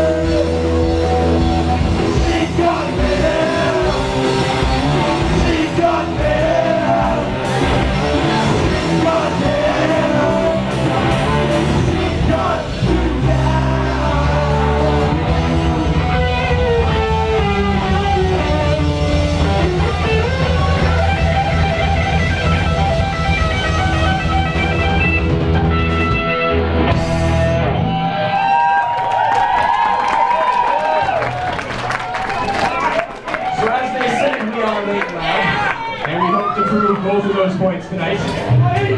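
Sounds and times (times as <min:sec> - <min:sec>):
drum kit: 0:00.0 - 0:28.4
electric guitars: 0:00.0 - 0:30.3
bass guitar: 0:00.0 - 0:32.4, 0:38.2 - 0:38.9.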